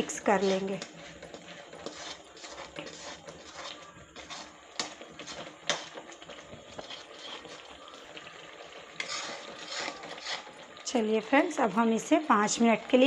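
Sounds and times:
metal spatula scraping a pan: 0.0 - 13.0
oil sizzling: 0.0 - 13.0.

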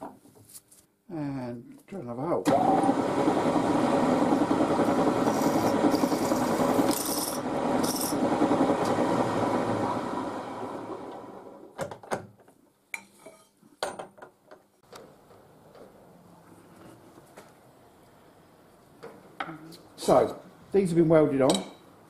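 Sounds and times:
drilling machine boring steel: 5.0 - 8.3.

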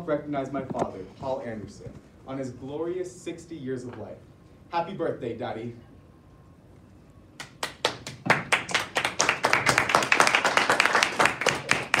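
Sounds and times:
people clapping: 7.4 - 12.0.

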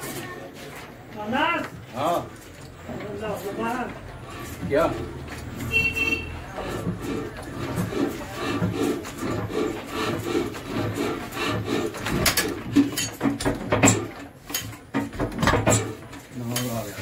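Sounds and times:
diesel engine cranked by hand: 3.0 - 16.3
metallic knocks and clanks: 8.6 - 16.7.

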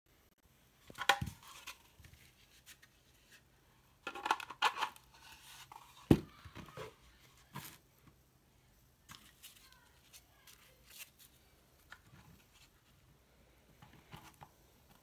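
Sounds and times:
plastic parts clicking and scraping: 4.0 - 7.0.

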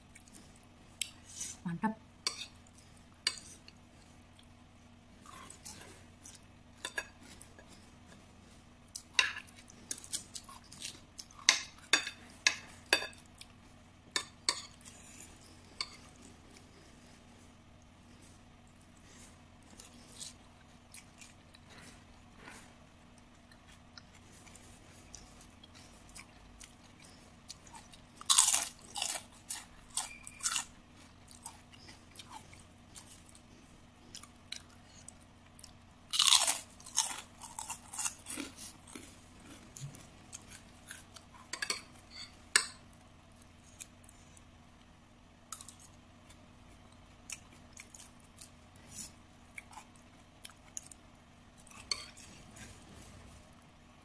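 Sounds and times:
crunching crackers: 27.6 - 30.7, 34.0 - 41.3.

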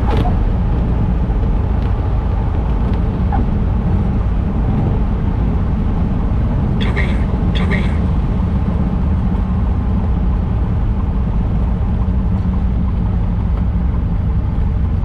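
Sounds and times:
light aircraft engine idling: 6.4 - 15.0.

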